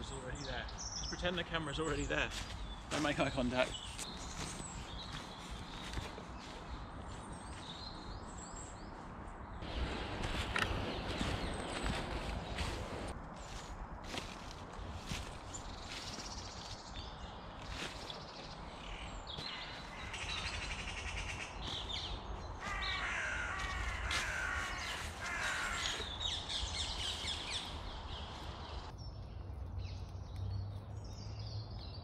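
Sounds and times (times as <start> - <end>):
small birds chirping: 0.0 - 32.0
footsteps in dry leaves: 1.8 - 8.2, 9.6 - 28.9
crows cawing: 19.4 - 21.6, 22.6 - 27.7.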